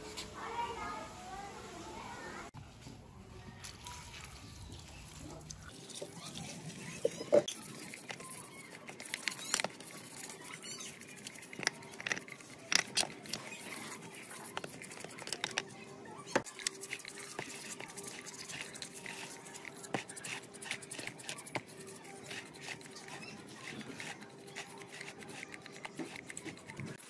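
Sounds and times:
brush scrubbing in liquid: 0:05.7 - 0:15.7, 0:16.4 - 0:27.0
metal parts clicking together: 0:11.5 - 0:13.6, 0:14.5 - 0:15.7.

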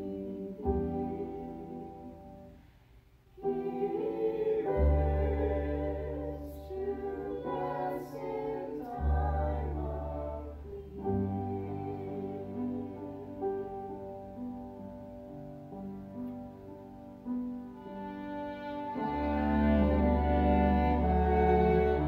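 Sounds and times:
mixed voices singing in harmony: 0:00.0 - 0:02.6, 0:03.4 - 0:14.2, 0:18.9 - 0:22.0
piano: 0:00.0 - 0:22.0
bowed strings: 0:17.8 - 0:22.0.

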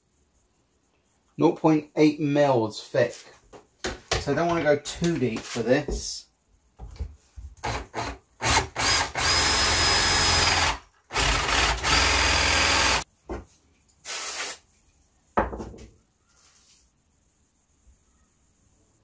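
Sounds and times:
cordless drill whining: 0:07.6 - 0:13.0.

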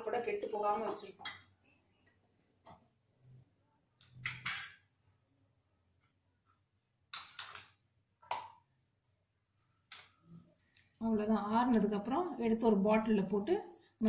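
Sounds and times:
kitchen utensils clattering: 0:04.2 - 0:04.9.

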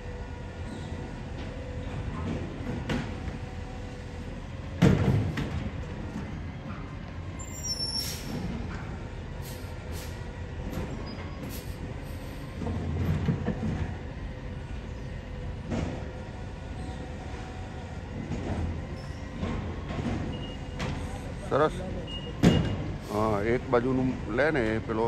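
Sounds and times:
garbage truck engine and hydraulics: 0:00.0 - 0:25.0
metal clanks of truck arm: 0:22.1 - 0:23.0.

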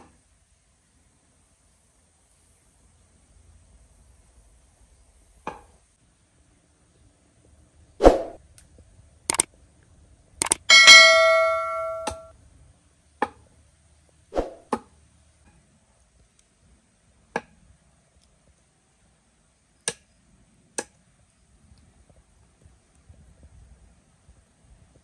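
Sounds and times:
bell-like chime: 0:10.7 - 0:12.3.

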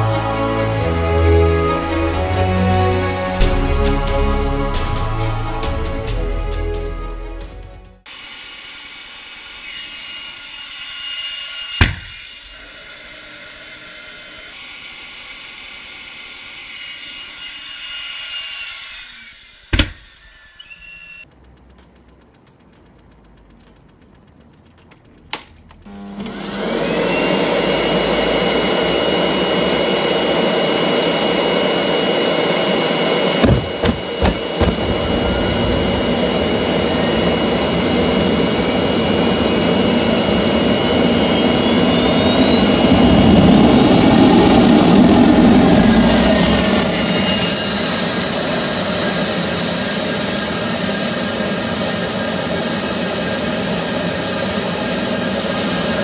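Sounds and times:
electric leaf blower: 0:00.0 - 0:05.9, 0:08.1 - 0:21.2, 0:25.8 - 0:56.0
turbo whine: 0:00.0 - 0:56.0
sharp clicks: 0:20.6 - 0:25.9.

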